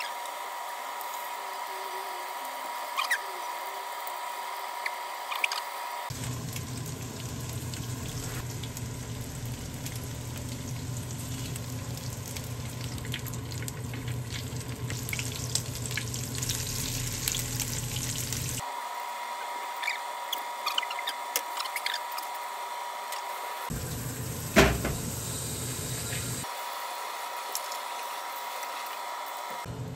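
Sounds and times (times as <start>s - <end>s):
batter sizzling in oil: 2.3s - 18.6s, 23.5s - 29.7s.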